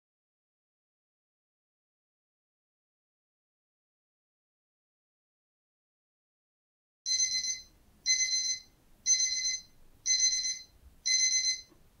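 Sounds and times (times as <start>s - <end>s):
timer beeping: 7.1s - 11.7s.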